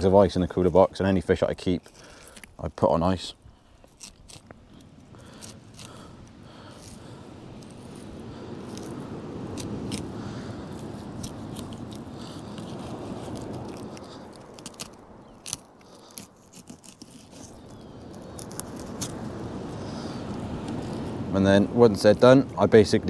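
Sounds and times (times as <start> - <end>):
knife scraping through fish: 3.7 - 19.2.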